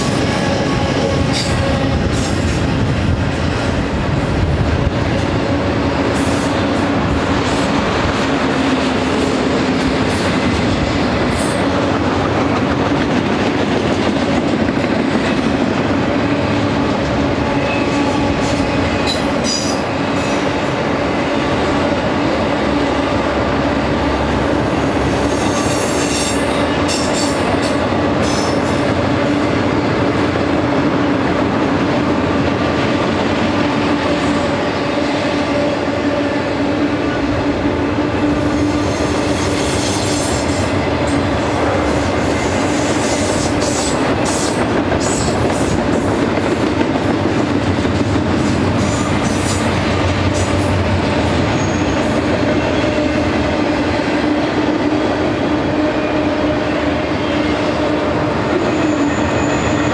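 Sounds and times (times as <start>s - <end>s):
train wheels clattering on rails: 0.0s - 23.3s, 24.0s - 36.0s, 37.1s - 55.4s
high-pitched wheel squeals: 51.5s - 52.1s, 58.6s - 59.9s.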